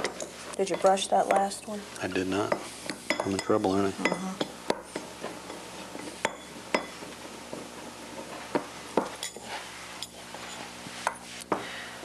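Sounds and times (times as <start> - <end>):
utensils clinking against glass bowl: 0.0 - 7.1, 9.0 - 10.6.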